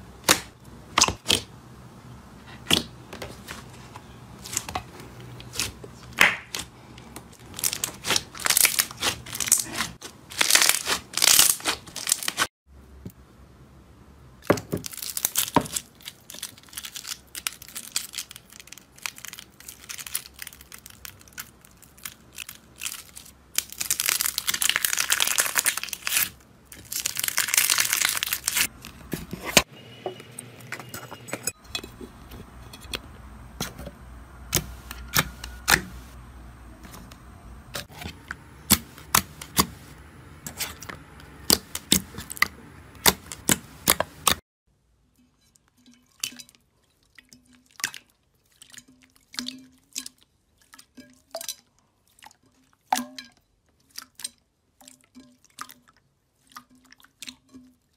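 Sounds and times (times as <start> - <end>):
slime squelching: 2.4 - 12.5, 14.6 - 29.7, 36.8 - 44.4.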